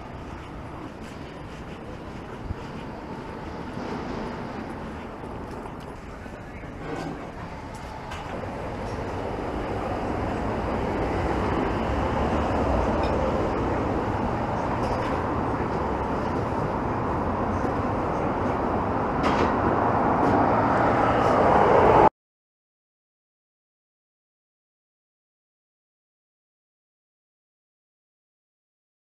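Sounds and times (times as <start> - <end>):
city street traffic hum: 0.0 - 22.1.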